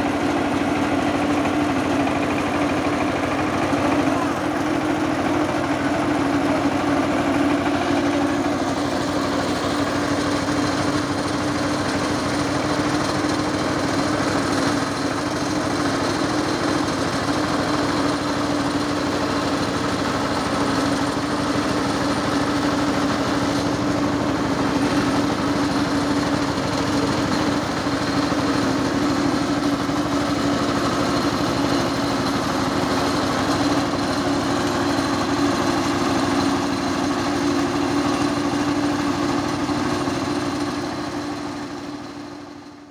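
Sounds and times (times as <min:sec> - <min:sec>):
diesel engine running: 0:00.0 - 0:42.9
rice milling machine: 0:00.0 - 0:42.9.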